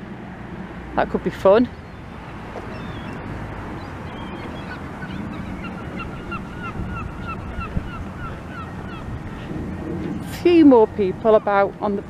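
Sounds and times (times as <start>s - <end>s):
wind rumble: 0.0s - 12.0s
gull calling: 1.9s - 9.5s.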